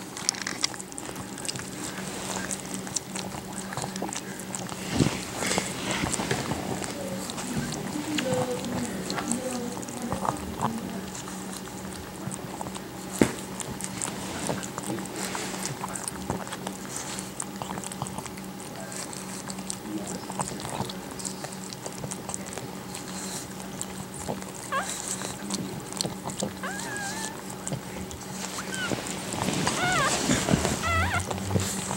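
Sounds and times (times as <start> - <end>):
dog licking puppies: 0.0 - 31.9
puppies squeaking: 24.6 - 25.4, 26.2 - 31.9.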